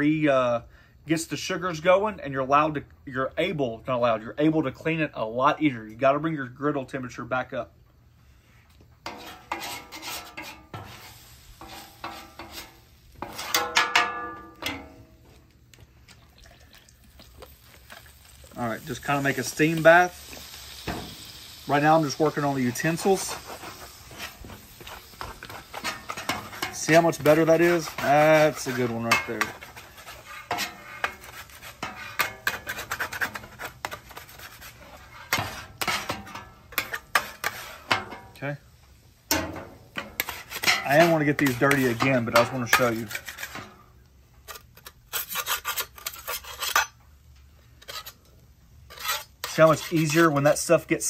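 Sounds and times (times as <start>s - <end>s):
metal spatulas scraping a griddle: 9.0s - 15.1s, 18.9s - 38.4s, 39.3s - 47.0s, 47.7s - 50.9s.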